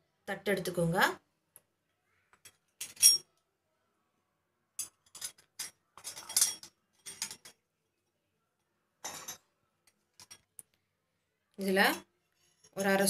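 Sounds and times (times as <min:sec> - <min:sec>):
steel parts clinking: 0:02.4 - 0:03.3, 0:04.8 - 0:07.6.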